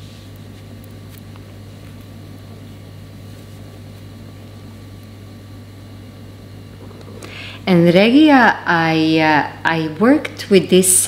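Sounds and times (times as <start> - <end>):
low hum: 0.0 - 10.1.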